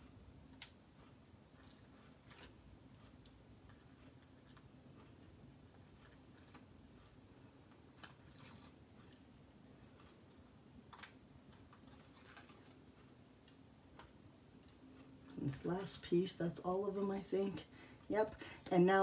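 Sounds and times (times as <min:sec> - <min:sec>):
paper and plastic crinkling: 0:08.0 - 0:09.2, 0:10.9 - 0:12.8.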